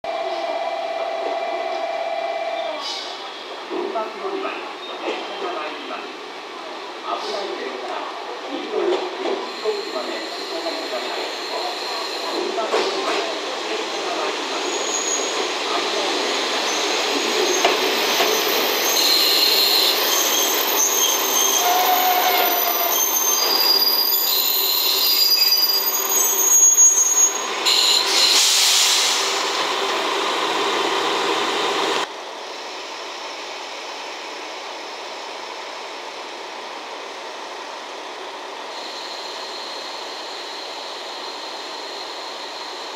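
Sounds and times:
train engines rumbling: 0.1 - 42.9
train wheels and brakes squealing: 9.2 - 13.3, 14.0 - 15.6, 16.3 - 29.5, 38.6 - 42.9.

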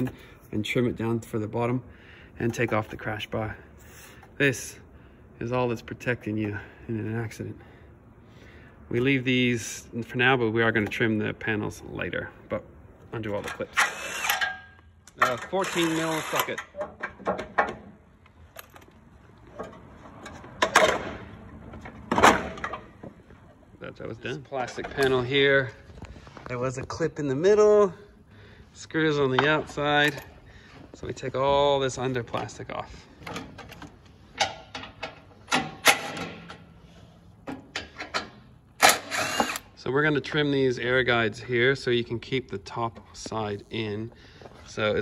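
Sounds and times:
power drill: 13.8 - 14.5, 15.6 - 16.5, 38.8 - 39.7
metal bracket clunks: 33.2 - 36.7.

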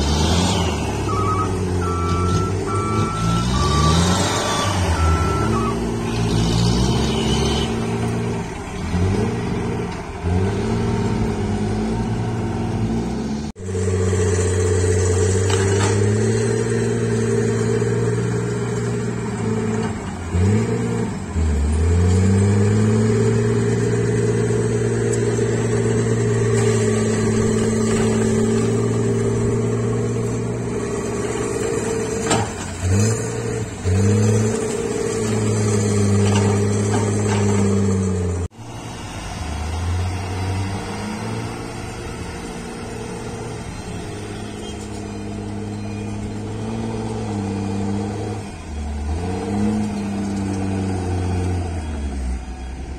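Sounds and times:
dump truck and dozer running: 0.0 - 52.9
excavator diesel engine under load: 0.0 - 52.9.

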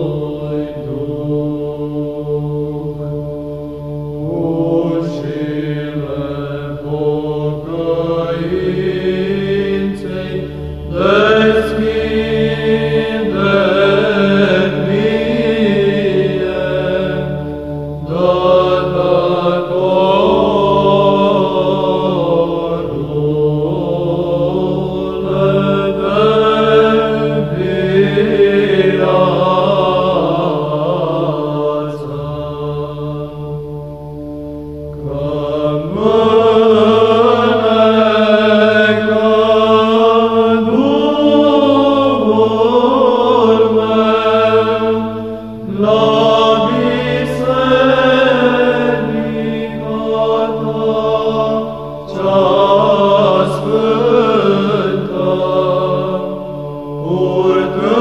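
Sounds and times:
held drone note: 0.0 - 58.0
voices chanting a slow melody: 0.0 - 58.0.

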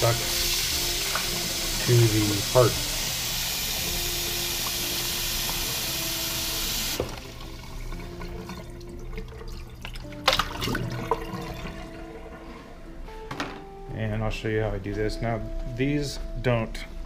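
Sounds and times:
tap running water into container: 0.0 - 2.9, 3.7 - 12.1.

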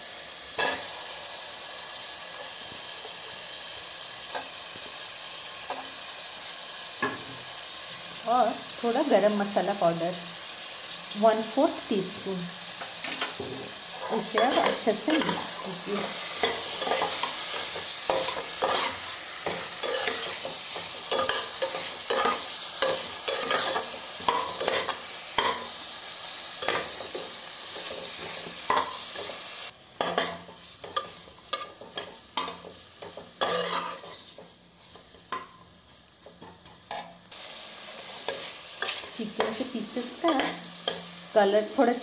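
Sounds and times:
food sizzling in a pot: 0.0 - 42.0
metal spoon scraping a pot: 33.4 - 34.3.

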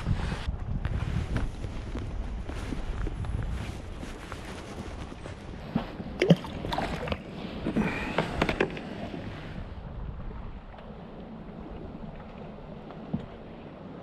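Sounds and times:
wind rumble on microphone: 0.0 - 14.0
water splashing against boat: 4.1 - 9.8.

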